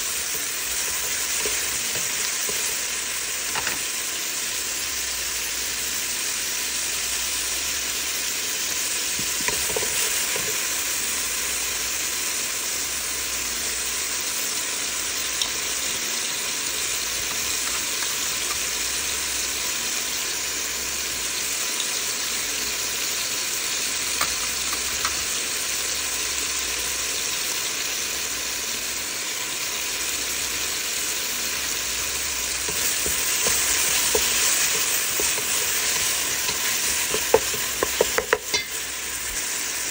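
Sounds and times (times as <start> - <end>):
wooden spoon stirring vegetables: 0.0 - 4.0, 8.8 - 11.1, 16.8 - 19.0, 30.4 - 39.7
vegetables sizzling in hot oil: 0.0 - 39.9.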